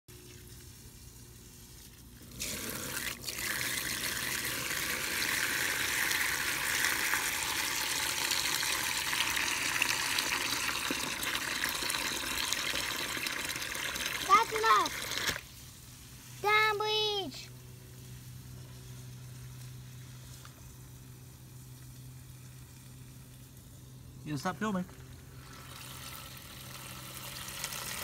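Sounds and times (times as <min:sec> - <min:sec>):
water gushing and churning: 0:02.3 - 0:15.4.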